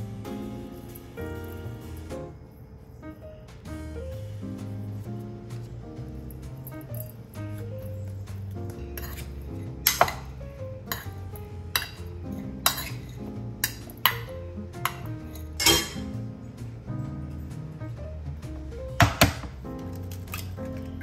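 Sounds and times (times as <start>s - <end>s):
background music: 0.0s - 21.0s
metal spoon clinking in a bowl: 8.9s - 16.1s.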